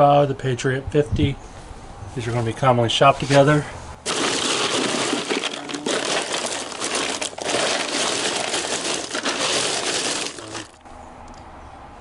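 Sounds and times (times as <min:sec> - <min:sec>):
hand rummaging through ice cubes: 0:04.0 - 0:10.8.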